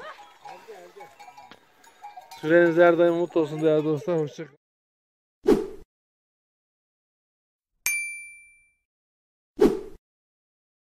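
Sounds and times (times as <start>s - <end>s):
bright bell ding: 7.9s - 8.8s.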